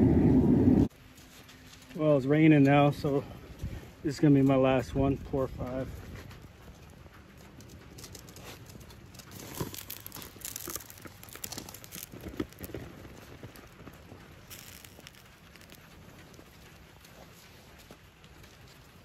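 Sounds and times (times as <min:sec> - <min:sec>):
foam crackling and popping: 0:00.9 - 0:19.0
molten metal pouring: 0:07.5 - 0:19.0.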